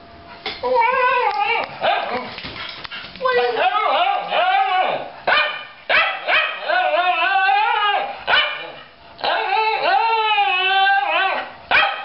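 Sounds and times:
dog wavering howl: 0:00.6 - 0:02.3, 0:03.2 - 0:05.2, 0:05.9 - 0:11.9
dog bark: 0:05.3 - 0:06.6, 0:08.3 - 0:08.8, 0:11.7 - 0:12.0.

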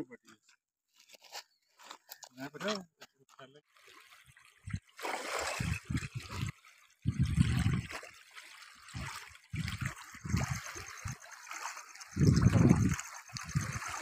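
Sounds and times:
water splashing at shoreline: 0:03.7 - 0:14.0
wind buffeting microphone: 0:05.5 - 0:07.9, 0:09.0 - 0:11.2, 0:12.1 - 0:14.0.

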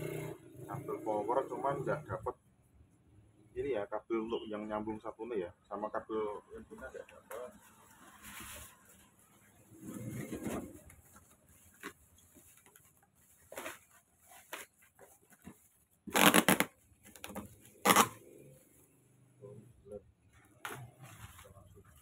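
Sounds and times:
plastic and cardboard packaging crinkling: 0:10.2 - 0:18.2.

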